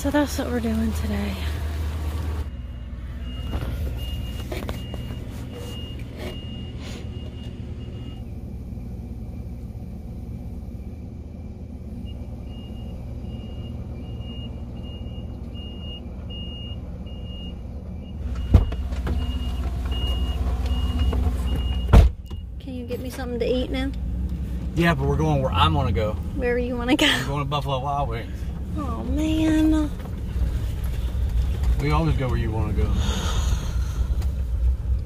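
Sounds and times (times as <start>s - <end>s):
engine rumble inside truck cab: 0.0s - 35.0s
cab door opening thump: 18.4s - 19.3s, 21.1s - 22.4s.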